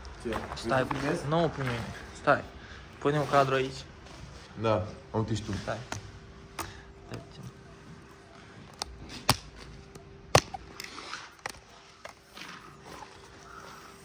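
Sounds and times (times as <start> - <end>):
faint steady hum: 3.8 - 14.0.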